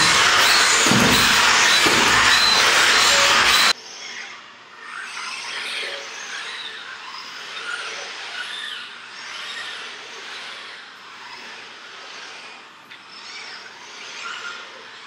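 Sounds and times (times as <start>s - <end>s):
loud rushing with squeals: 0.0s - 3.8s
robot motors whirring: 0.0s - 3.8s.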